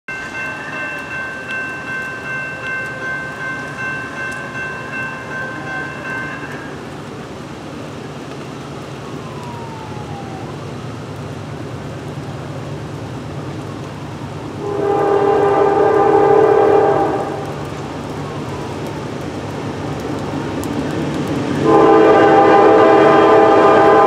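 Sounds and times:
distant locomotive air horn: 14.6 - 17.6, 21.6 - 24.0.

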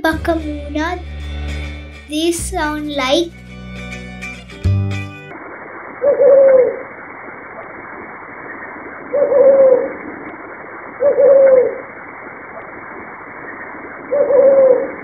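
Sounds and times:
owl hooting: 6.0 - 6.8, 9.1 - 10.1, 11.0 - 11.9, 14.0 - 15.0.

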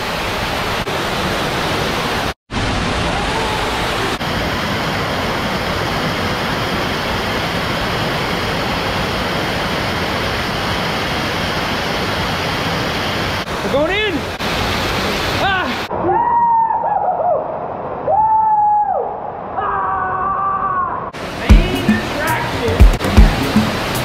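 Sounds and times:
waterfall pouring and splashing: 0.0 - 15.9, 21.2 - 24.0.

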